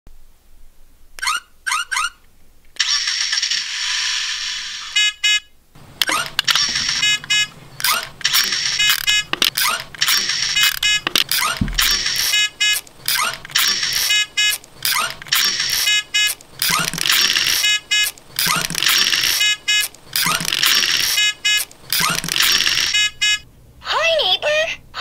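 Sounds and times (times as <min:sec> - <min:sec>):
toy falling chirps: 0:01.2 - 0:02.2, 0:06.0 - 0:23.4
toy engine-start rumble: 0:06.0 - 0:12.4
rhythmic clicks and electronic tones: 0:06.0 - 0:23.4.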